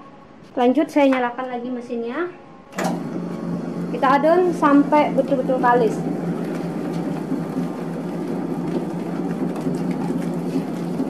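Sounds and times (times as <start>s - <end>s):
electric dough mixer humming: 2.8s - 11.0s.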